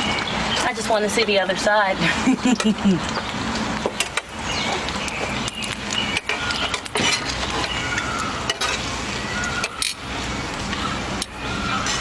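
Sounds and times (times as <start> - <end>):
metal tongs scraping a pan: 6.1 - 8.9.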